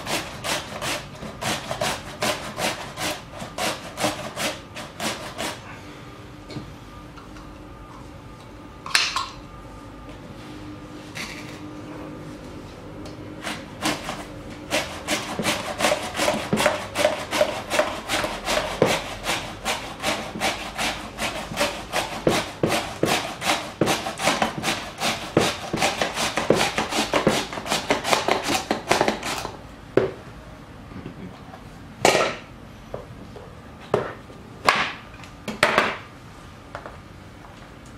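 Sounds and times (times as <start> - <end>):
potato scraping on mandoline slicer: 0.0 - 5.6, 13.4 - 29.5.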